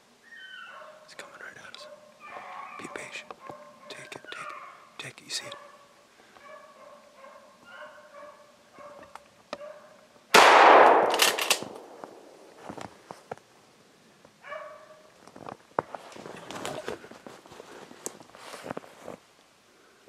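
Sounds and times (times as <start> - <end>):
beagles baying: 1.7 - 9.9
gunshot: 10.4 - 12.3.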